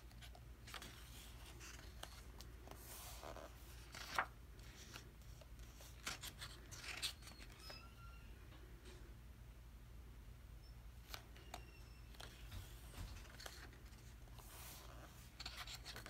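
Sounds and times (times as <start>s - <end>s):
paper pages rustling: 0.0s - 7.8s, 12.1s - 16.0s.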